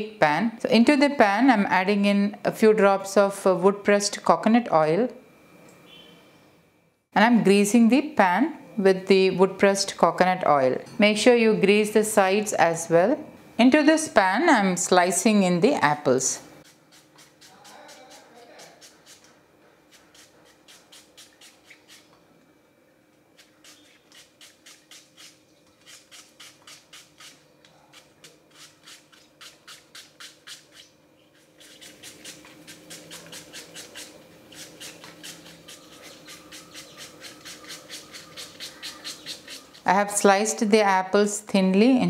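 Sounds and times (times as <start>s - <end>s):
knife slicing apple: 16.6s - 19.3s, 19.9s - 22.1s, 23.4s - 39.9s.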